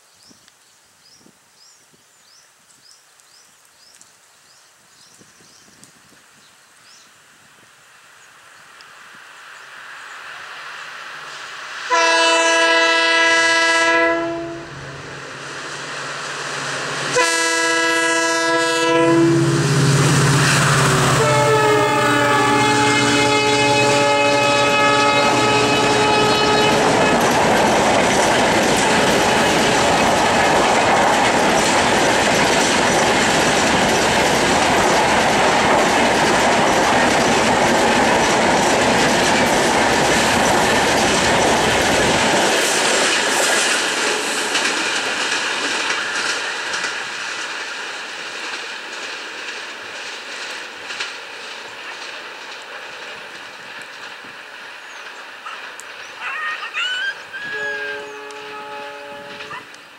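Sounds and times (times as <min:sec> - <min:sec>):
locomotive engine rumble: 0:08.8 - 0:48.4
locomotive air horn blasts: 0:11.9 - 0:14.8, 0:17.1 - 0:27.0, 0:57.5 - 0:59.7
train wheels clacking over rail joints: 0:22.6 - 0:56.2.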